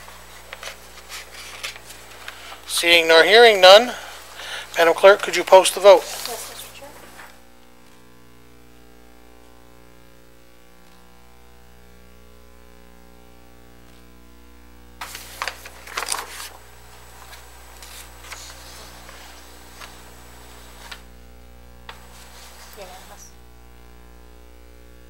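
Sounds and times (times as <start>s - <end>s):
handling noises: 0.0s - 2.7s, 15.0s - 21.1s
electrical mains hum: 0.0s - 25.0s.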